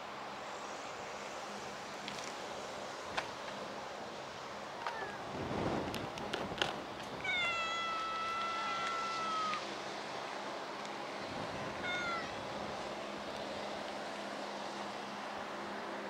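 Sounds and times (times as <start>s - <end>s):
cat meowing: 7.2s - 9.6s, 11.8s - 12.4s.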